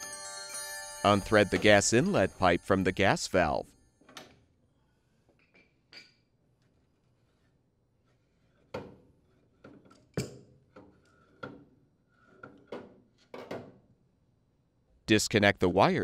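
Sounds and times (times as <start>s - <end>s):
metal pipe clinks and knocks: 1.3s - 2.2s, 5.4s - 6.4s.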